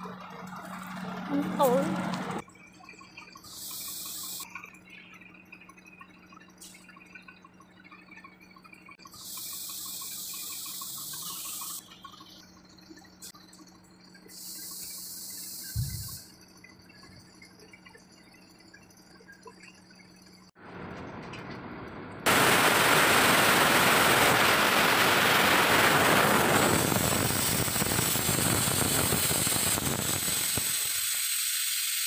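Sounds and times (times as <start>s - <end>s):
compressed air hissing: 3.5s - 4.4s, 9.2s - 11.8s, 22.3s - 32.0s
thump: 15.8s - 16.0s.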